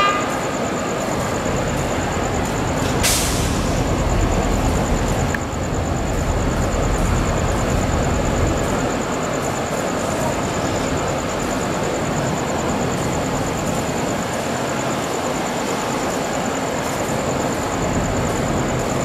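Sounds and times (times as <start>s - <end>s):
diesel locomotive rumbling: 0.0s - 19.0s
air brake hiss: 2.9s - 3.9s.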